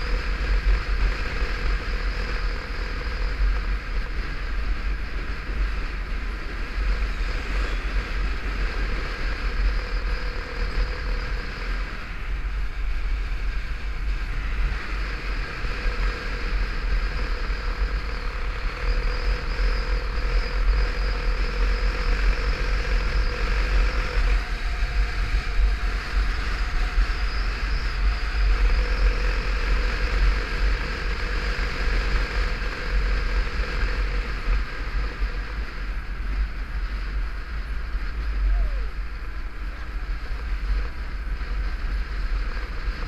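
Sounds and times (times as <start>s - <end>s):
motorcycle engine running: 0.0s - 43.0s
wind buffeting microphone: 0.0s - 43.0s.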